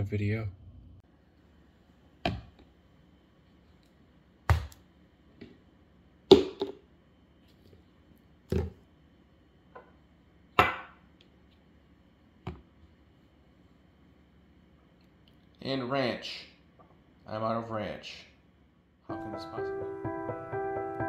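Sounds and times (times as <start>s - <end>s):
bottles set down on stone countertop: 10.6s - 11.0s.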